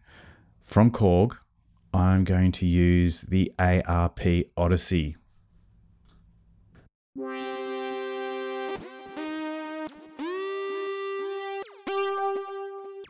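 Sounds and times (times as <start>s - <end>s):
synthesizer lead notes: 7.2s - 13.0s.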